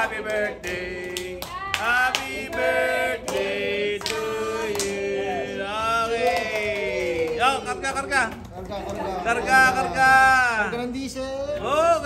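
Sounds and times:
group of people singing: 0.0s - 6.2s.

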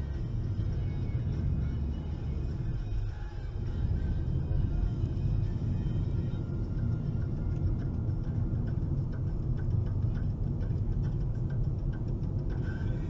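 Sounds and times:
car road and engine rumble: 0.0s - 13.0s
faint ticks: 4.7s - 13.0s.

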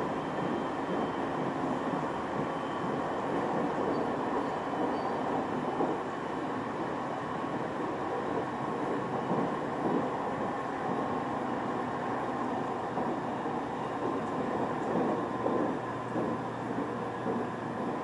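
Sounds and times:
constant low hum: 0.0s - 18.0s
train wheels rumbling on rail: 0.0s - 18.0s.

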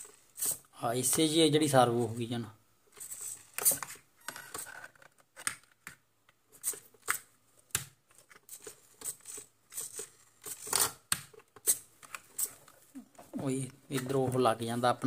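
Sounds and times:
plastic parts clicking and rustling: 2.9s - 14.5s.

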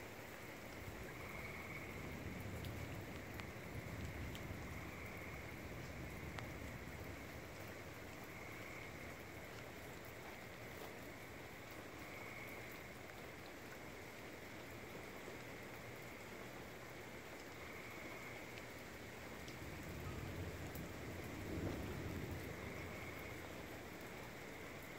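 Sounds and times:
steady rain: 0.0s - 24.9s
thunder rumble: 0.9s - 9.2s, 19.5s - 24.0s.

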